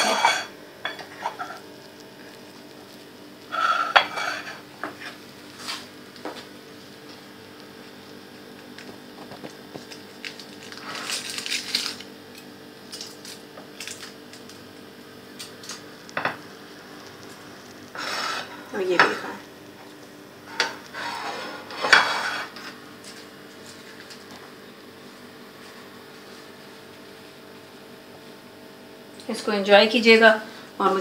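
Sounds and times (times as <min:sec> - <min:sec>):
plate and cutlery clinking: 0:00.0 - 0:01.6, 0:03.5 - 0:04.6, 0:20.5 - 0:22.6
faint steady hum: 0:00.0 - 0:31.0.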